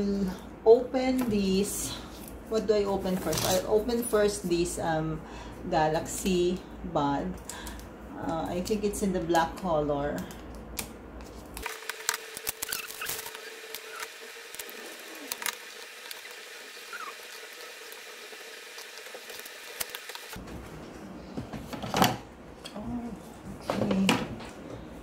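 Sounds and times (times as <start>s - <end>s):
faint steady hum: 0.0s - 25.0s
packaging handling rustle: 11.2s - 20.4s.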